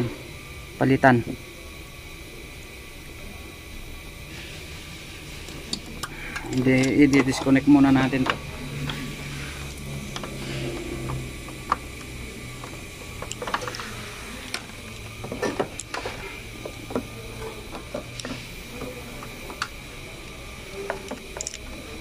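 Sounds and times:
steady low hum: 0.0 - 22.0
hose connections clicking: 5.5 - 21.9.

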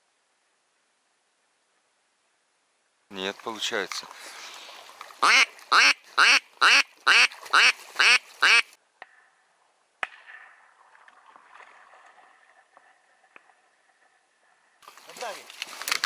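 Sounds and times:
faint hiss: 0.0 - 5.2
loud duck quacks: 5.2 - 8.7.

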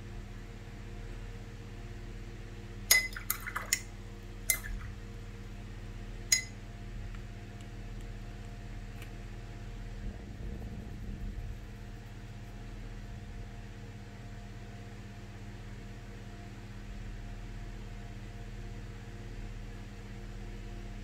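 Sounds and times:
low electrical hum: 0.0 - 21.0
brush clinking against glass jar: 2.9 - 3.8, 6.3 - 6.6.

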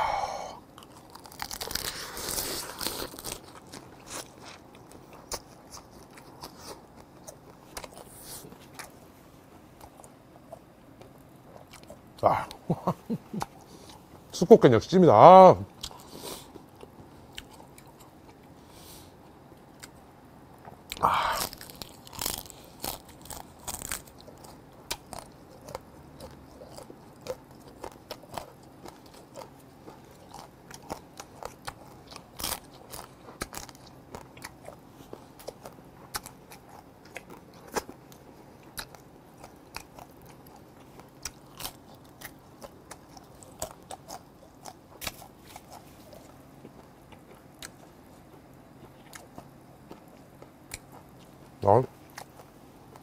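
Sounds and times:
crab shell crunching: 0.8 - 9.0, 20.9 - 51.3
wet chewing clicks: 20.9 - 53.0.

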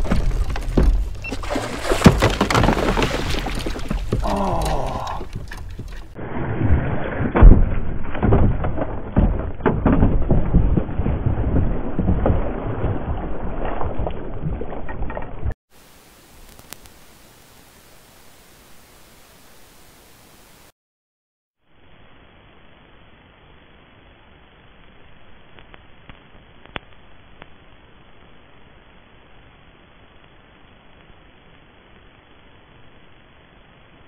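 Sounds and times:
knocks against a kayak: 0.0 - 6.1
water splashing: 0.0 - 9.2, 10.1 - 15.5.

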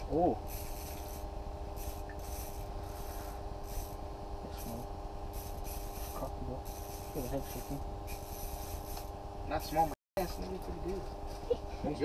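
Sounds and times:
steady low hum: 0.0 - 12.0
scratchy rubbing noises: 4.6 - 9.1.

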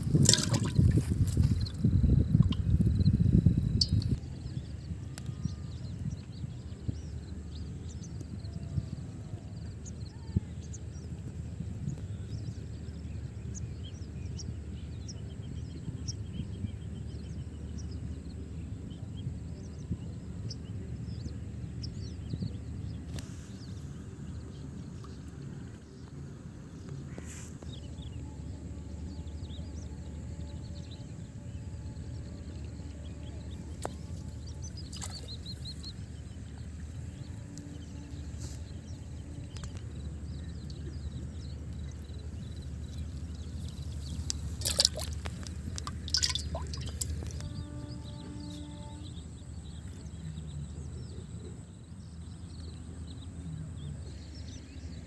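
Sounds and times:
birds chirping: 32.2 - 51.4.

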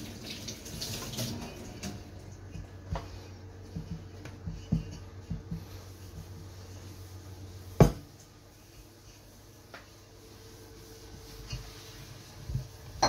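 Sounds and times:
low steady hum: 0.0 - 13.0
hands rubbing tea towel: 3.0 - 7.8, 8.5 - 13.0.

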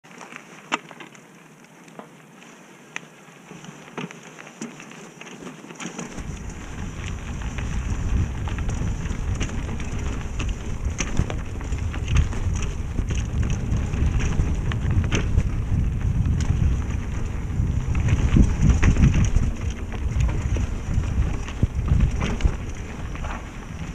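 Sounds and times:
bike rattling on a dirt trail: 0.1 - 23.9
wind rumble on microphone: 6.1 - 23.9.

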